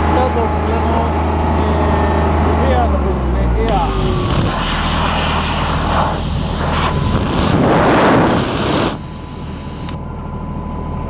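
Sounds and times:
loud rushing hiss: 3.7s - 10.0s
thin steady whine: 3.7s - 10.2s
welder generator engine hum: 3.7s - 11.0s.

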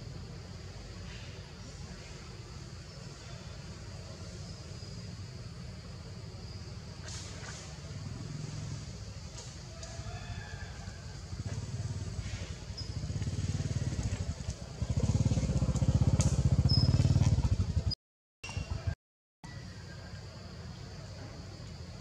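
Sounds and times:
small engine throbbing: 11.0s - 19.0s.

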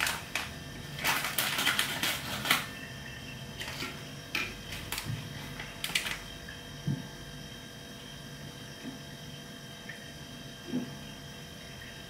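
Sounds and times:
plastic packet crinkling: 0.0s - 2.7s, 4.7s - 6.3s.

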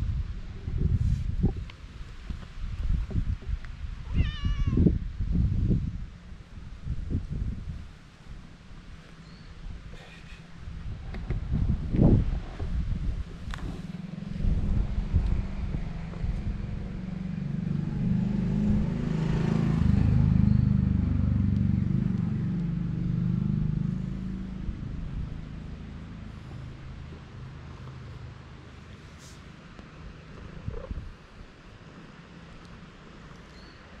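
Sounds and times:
wind on microphone: 0.0s - 27.8s, 30.1s - 31.6s
cat meowing: 4.0s - 4.9s.

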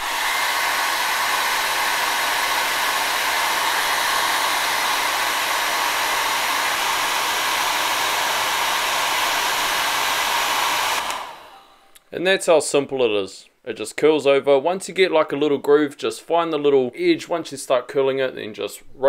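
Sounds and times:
hair dryer running: 0.0s - 11.8s.

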